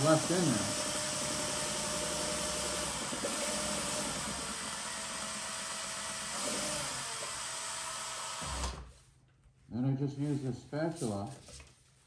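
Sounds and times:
electric drill mixing paint: 0.0s - 8.9s.

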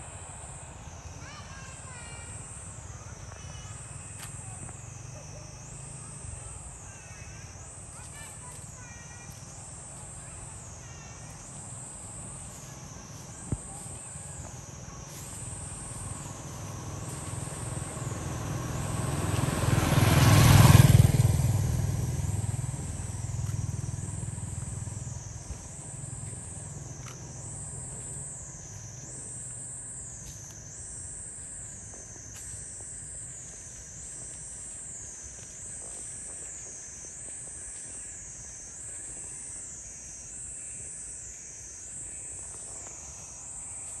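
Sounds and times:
insects pulsing buzz: 0.0s - 44.0s
motorbike passing by: 3.2s - 13.4s, 14.9s - 29.0s.

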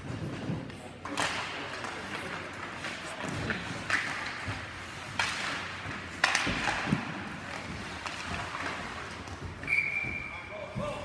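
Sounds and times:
ice rink noise: 0.0s - 11.0s
high whistle tone: 9.6s - 10.5s.

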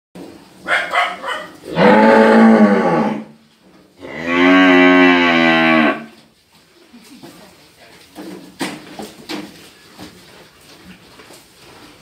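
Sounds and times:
cattle mooing: 1.7s - 3.4s, 4.0s - 6.2s.

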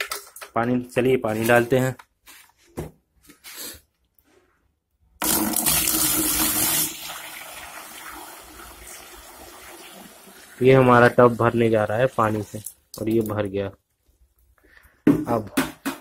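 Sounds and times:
water pouring into plastic tub: 5.2s - 13.3s.

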